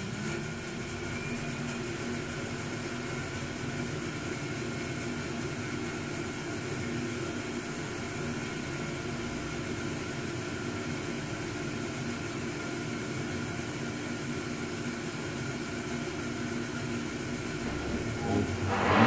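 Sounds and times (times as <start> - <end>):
fog machine blower humming: 17.0 - 19.0.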